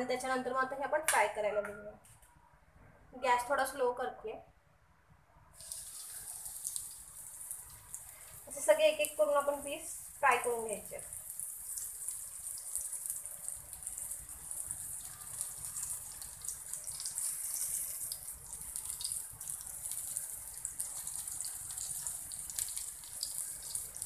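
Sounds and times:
fish sizzling in oil: 5.6 - 24.0.

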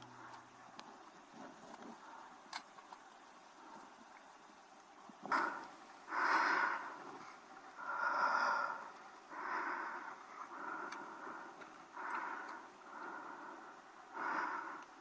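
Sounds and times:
heavy rhythmic breathing: 5.2 - 15.0.

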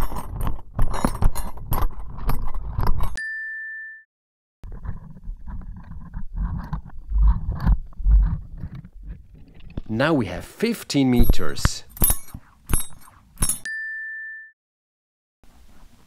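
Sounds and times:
tools jangling underwater: 11.2 - 13.7
brief ringing tone: 13.7 - 14.6.

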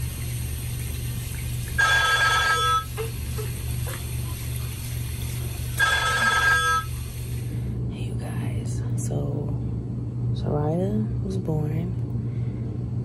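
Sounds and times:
steady low hum: 0.0 - 13.0
telephone ringing: 1.8 - 2.9, 5.8 - 6.9.

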